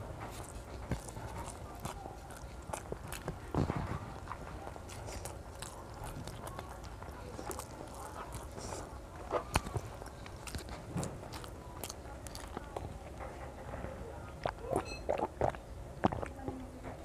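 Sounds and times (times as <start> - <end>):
rice squelching in fingers: 0.0 - 13.0
child chewing and mouth smacking: 0.0 - 17.0.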